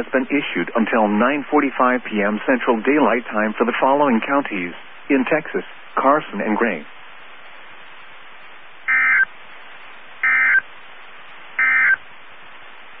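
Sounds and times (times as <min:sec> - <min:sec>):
steady radio hiss: 0:00.0 - 0:13.0
buzzy digital chirps: 0:08.9 - 0:09.3, 0:10.2 - 0:10.7, 0:11.6 - 0:12.0.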